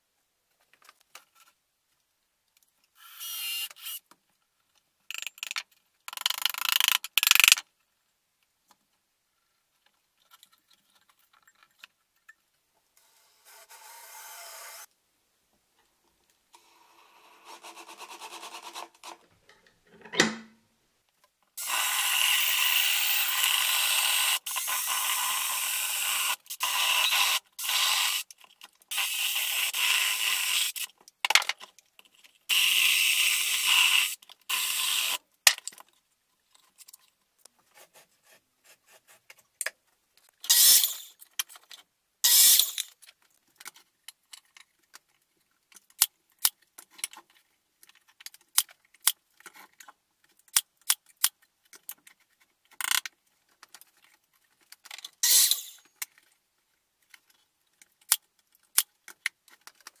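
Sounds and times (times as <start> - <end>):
tools clicking and knocking: 5.1 - 7.7, 19.1 - 20.6.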